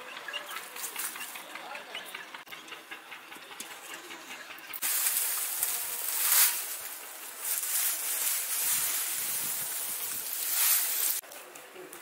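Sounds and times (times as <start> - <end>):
dry straw rustling and crackling: 4.8 - 12.0.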